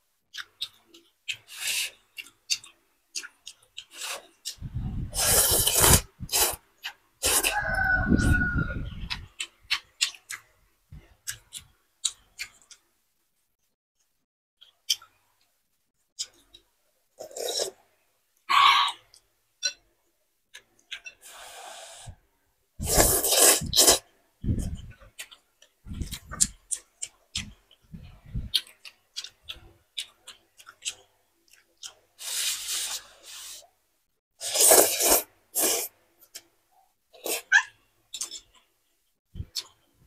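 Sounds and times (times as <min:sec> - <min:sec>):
chewing: 0:00.3 - 0:04.6, 0:09.0 - 0:12.8, 0:20.5 - 0:21.2, 0:24.6 - 0:32.1, 0:37.2 - 0:38.7
person slurping noodles: 0:05.0 - 0:06.6, 0:07.2 - 0:07.6, 0:17.2 - 0:17.8, 0:22.8 - 0:24.0, 0:32.2 - 0:33.6, 0:34.4 - 0:35.9, 0:37.2 - 0:37.5.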